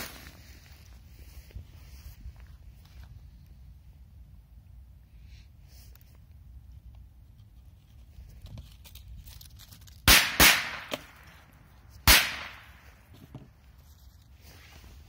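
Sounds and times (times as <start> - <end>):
firecrackers exploding: 10.0 - 11.2, 12.0 - 12.8.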